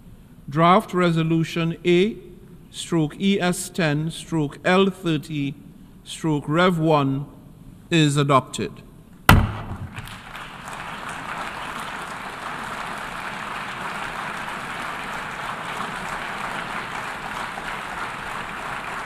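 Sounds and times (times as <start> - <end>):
crowd applauding: 10.0 - 19.0.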